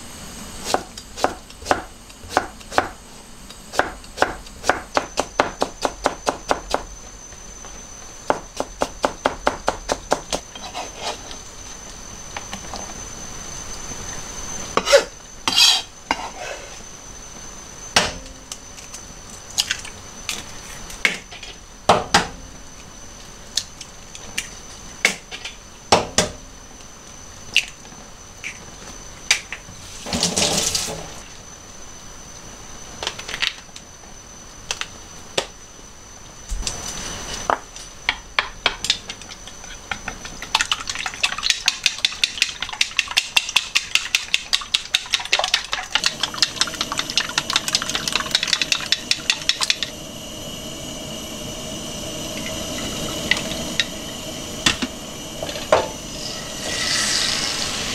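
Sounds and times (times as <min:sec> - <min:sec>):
chopsticks beating eggs in bowl: 0:40.7 - 0:49.9.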